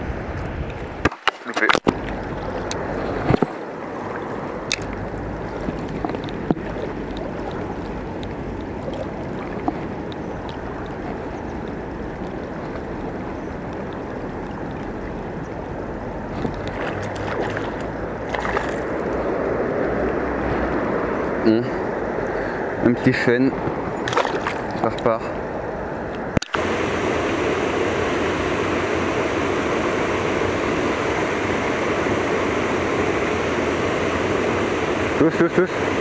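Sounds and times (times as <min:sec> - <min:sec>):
river water rushing: 0:00.0 - 0:36.0
sharp clicks: 0:26.1 - 0:26.6.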